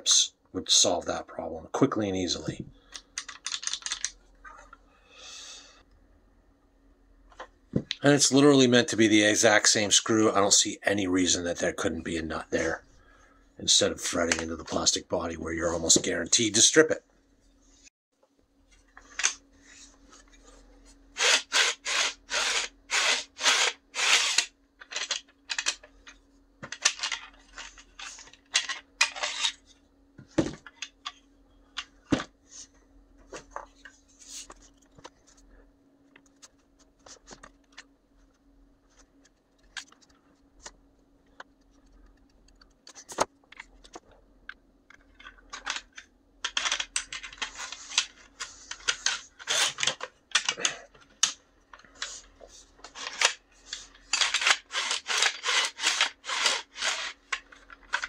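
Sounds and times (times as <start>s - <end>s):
faint steady hum: 0.0s - 58.0s
plastic parts scraping and clicking: 2.5s - 4.8s, 23.4s - 29.7s, 38.9s - 58.0s.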